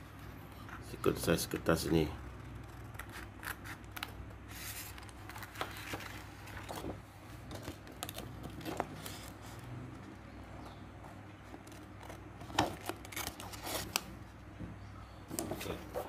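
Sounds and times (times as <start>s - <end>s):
scissors snipping paper: 2.6s - 5.2s, 11.6s - 14.1s
paper rustle: 4.0s - 9.6s, 11.7s - 14.1s.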